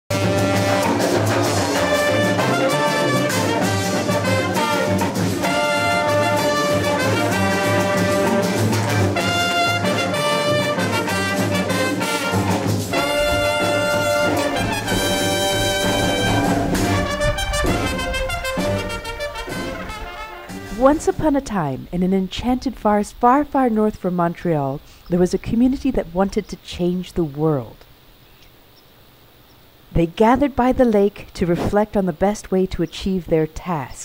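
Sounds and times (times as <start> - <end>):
instrumental background music: 0.1 - 21.5.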